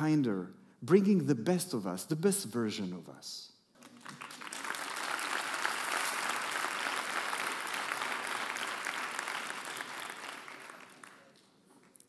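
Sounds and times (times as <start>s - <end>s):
large audience applauding: 3.8s - 12.0s.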